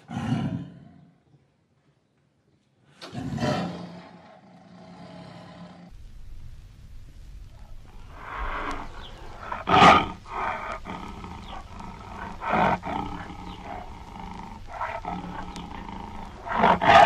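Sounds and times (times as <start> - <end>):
tiger roaring: 3.0 - 5.9, 8.0 - 17.0.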